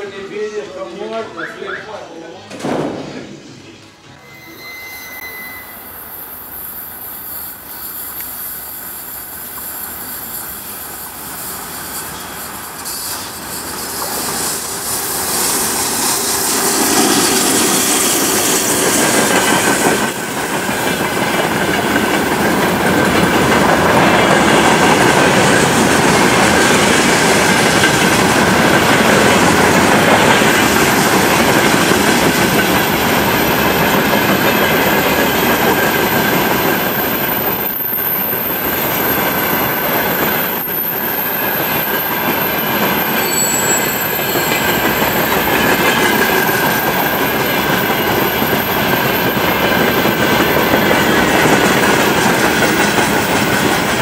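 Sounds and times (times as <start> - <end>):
high squeal: 4.1 - 20.3, 35.6 - 52.4
train wagons rumbling over rails: 8.2 - 54.0.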